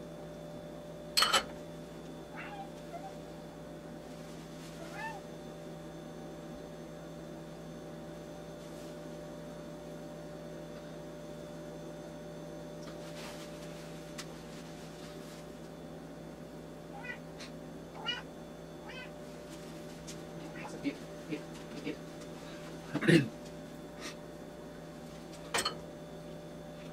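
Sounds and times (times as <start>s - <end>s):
electrical hum: 0.0s - 26.9s
cat meowing faintly: 2.3s - 3.2s, 4.8s - 5.3s, 16.9s - 19.2s, 20.4s - 20.9s.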